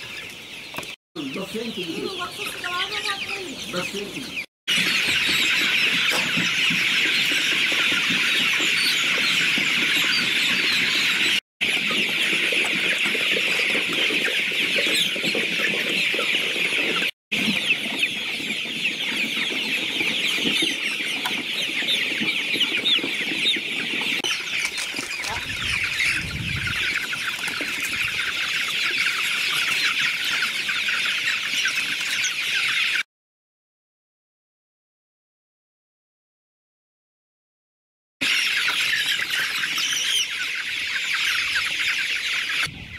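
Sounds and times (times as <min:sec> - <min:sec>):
chicks peeping: 0:00.0 - 0:33.1, 0:38.2 - 0:42.9.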